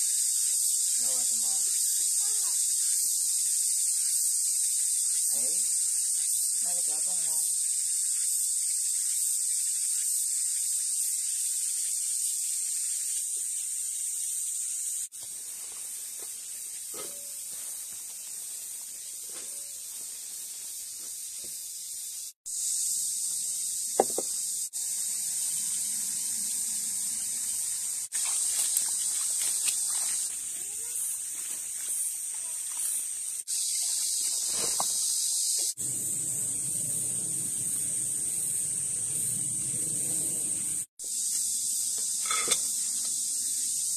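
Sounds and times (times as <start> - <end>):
steady high-pitched hiss: 0.0 - 43.9
water splashing into a bowl: 28.1 - 30.3.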